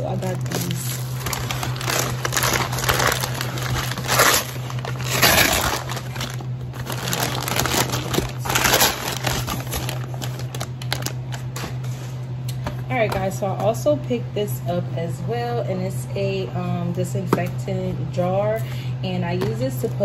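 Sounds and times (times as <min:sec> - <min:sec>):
paper packaging crinkling: 0:00.0 - 0:11.8
steady low hum: 0:00.0 - 0:20.0.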